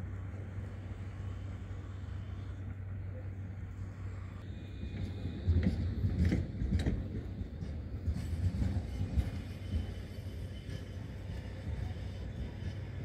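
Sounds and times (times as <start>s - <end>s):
tram wheels clacking on rail joints: 4.7s - 13.0s.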